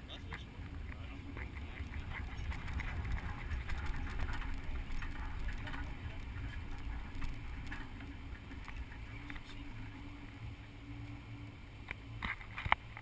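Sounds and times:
light ticks and rattles: 0.0s - 13.0s
vehicle engine low rumble: 0.0s - 13.0s.

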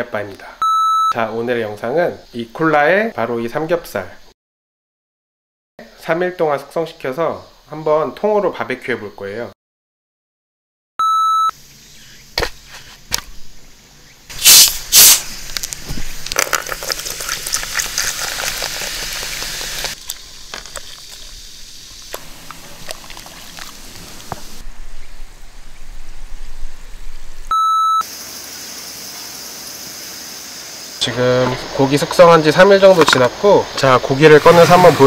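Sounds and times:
short beep tone: 0.6s - 1.2s, 11.0s - 11.5s, 27.5s - 28.1s
loud hisses: 14.3s - 24.6s, 28.1s - 35.0s
small crackles: 15.0s - 24.6s
soda pouring and fizzing: 16.0s - 24.6s.

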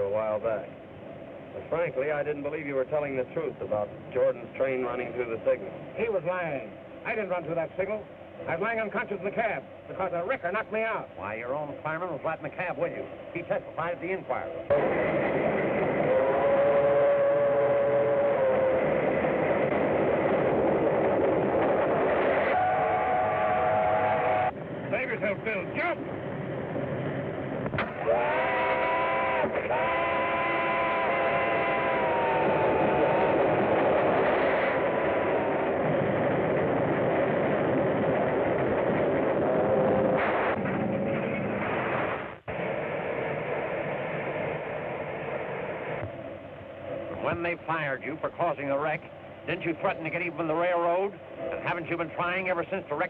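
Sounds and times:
steam locomotive rumble: 0.0s - 53.0s
steam whistle: 14.7s - 19.6s, 22.2s - 24.6s, 27.9s - 35.8s.

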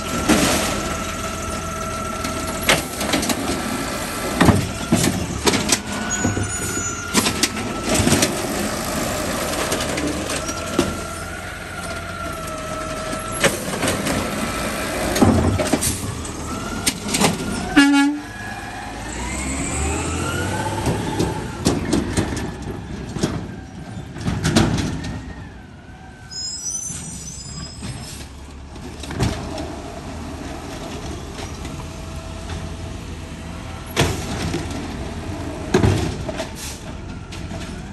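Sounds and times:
truck engine revving: 0.0s - 23.4s
garbage carts banging: 0.0s - 25.5s, 26.8s - 37.9s.

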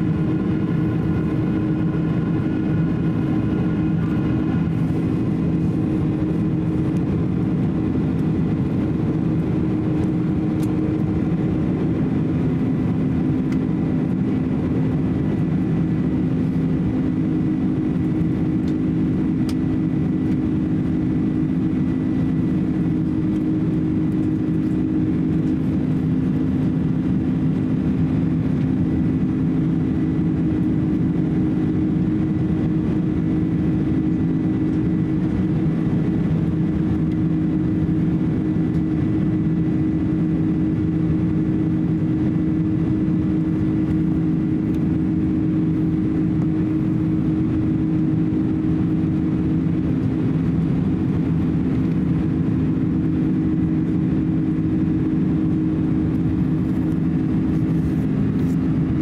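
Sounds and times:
airplane cabin engine drone: 0.0s - 59.0s.

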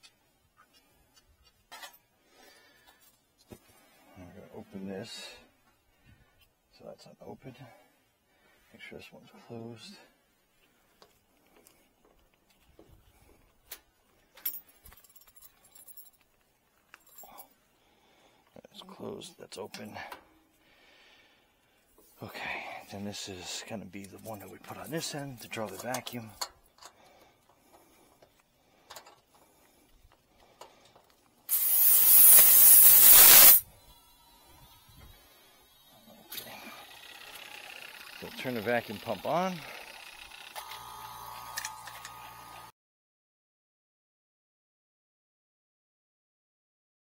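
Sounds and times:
faint clicks of metal fittings: 25.6s - 31.3s
gas hissing from valve: 31.5s - 33.7s.

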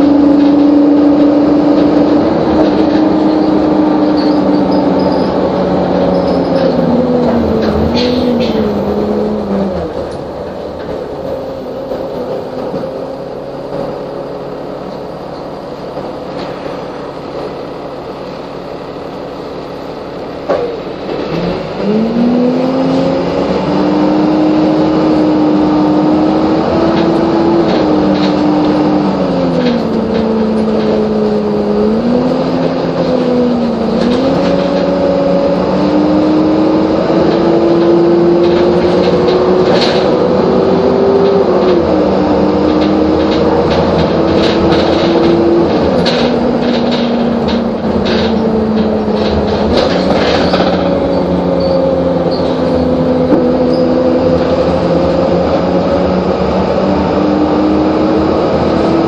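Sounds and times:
bus engine running: 0.0s - 59.0s.

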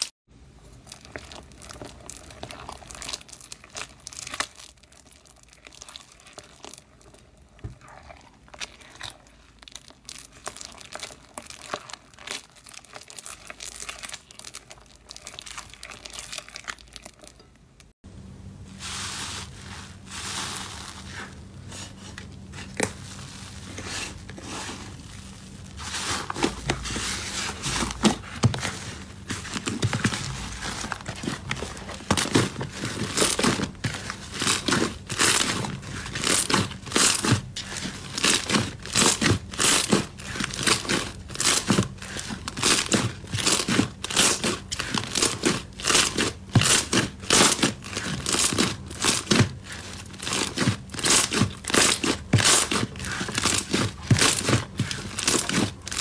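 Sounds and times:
slime squishing and crackling: 0.0s - 17.9s, 18.9s - 56.0s.

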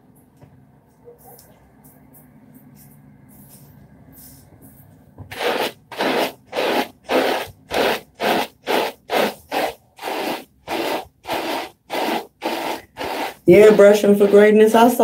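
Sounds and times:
hair brush scrubbing wet hair: 5.3s - 15.0s.

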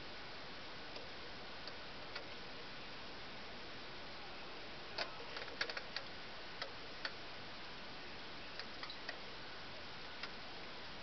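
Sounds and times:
steady hiss: 0.0s - 11.0s
sharp irregular clicks: 1.0s - 2.3s, 5.0s - 7.2s.

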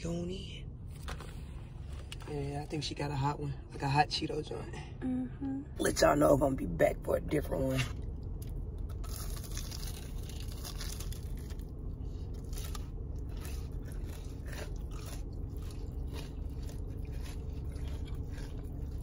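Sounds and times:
low hum: 0.0s - 19.0s
crunchy food chewing: 7.8s - 19.0s.

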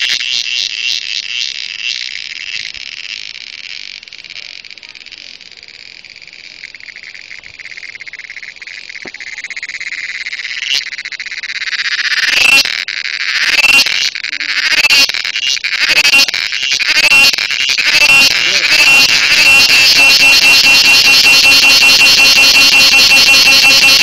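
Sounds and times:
cricket pulsing buzz: 0.0s - 24.0s.

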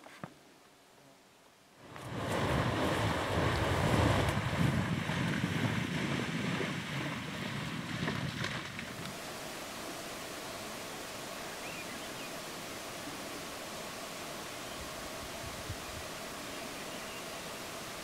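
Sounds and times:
steady faint hiss: 0.0s - 18.0s
animals running through splashing water: 1.9s - 9.2s.

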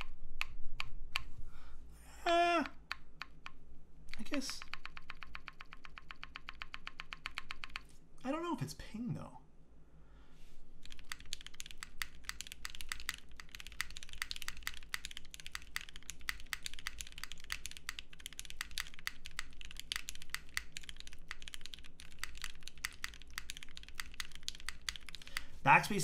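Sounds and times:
mechanical keyboard typing: 2.5s - 7.9s, 10.8s - 25.5s.

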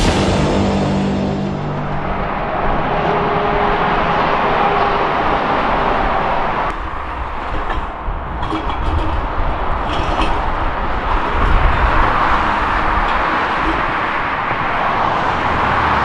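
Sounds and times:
motorway traffic passing: 0.0s - 16.0s.

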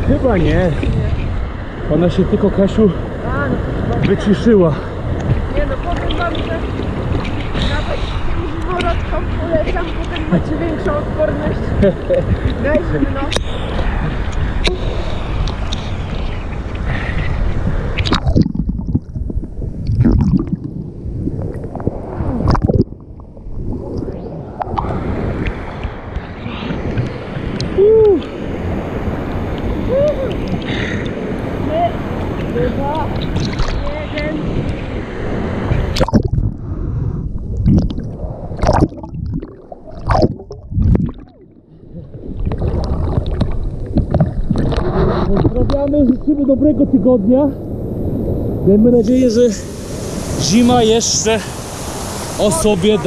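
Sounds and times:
water splashes: 0.0s - 47.3s, 48.1s - 53.0s
water sloshing and gurgling: 0.0s - 48.9s
weir water rushing: 0.0s - 53.0s
wind: 0.0s - 53.0s
muffled underwater bubbling: 12.2s - 28.3s, 35.9s - 45.8s.

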